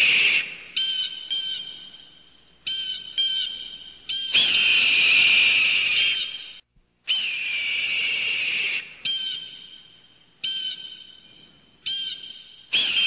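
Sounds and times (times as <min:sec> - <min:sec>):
bird of prey screaming: 0:00.0 - 0:01.9, 0:02.7 - 0:09.7, 0:11.8 - 0:13.0.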